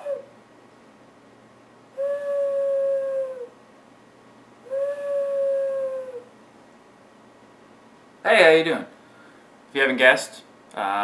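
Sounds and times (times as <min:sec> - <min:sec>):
hand whistle hoots: 0:02.0 - 0:03.4, 0:04.7 - 0:06.0.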